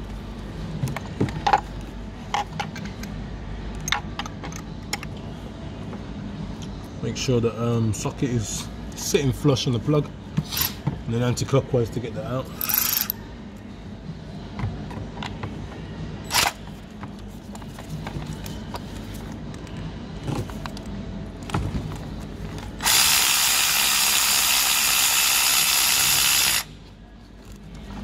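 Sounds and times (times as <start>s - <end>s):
power ratchet running: 22.8s - 26.7s.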